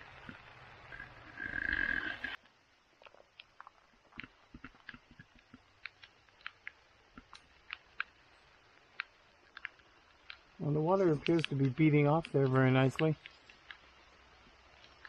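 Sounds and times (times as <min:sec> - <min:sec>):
raindrops tapping: 0:03.2 - 0:15.0.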